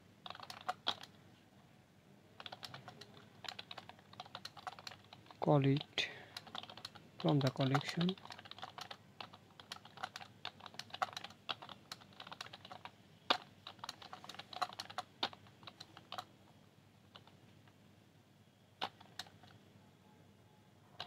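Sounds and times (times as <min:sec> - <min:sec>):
computer keyboard typing: 0:00.2 - 0:01.1, 0:02.4 - 0:16.3, 0:17.1 - 0:17.3, 0:18.8 - 0:19.6.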